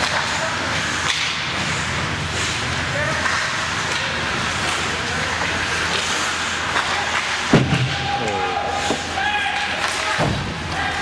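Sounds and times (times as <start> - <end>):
hockey sticks and puck clicking: 0.0 - 1.7, 2.4 - 11.0.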